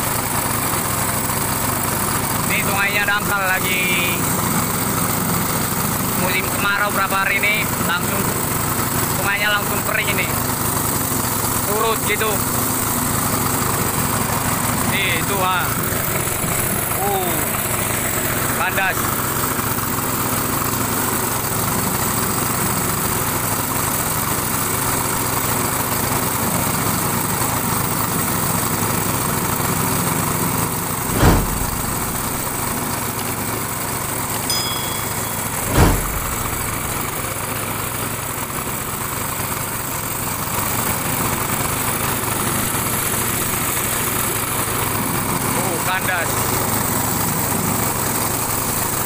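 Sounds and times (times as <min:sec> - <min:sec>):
small boat engine running: 0:00.0 - 0:49.0
sharp thumps: 0:31.0 - 0:33.0, 0:34.5 - 0:38.0.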